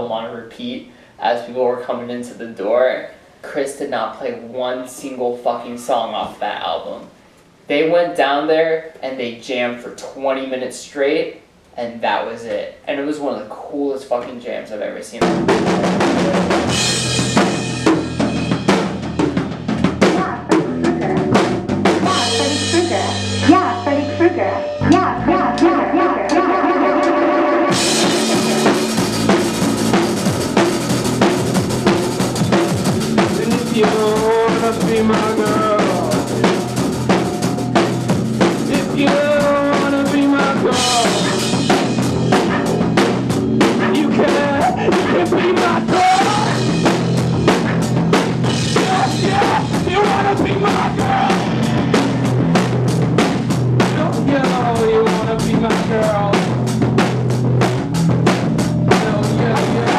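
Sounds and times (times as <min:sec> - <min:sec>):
drum kit beat: 0:15.2 - 0:59.9
full band playing loudly: 0:15.2 - 0:59.9.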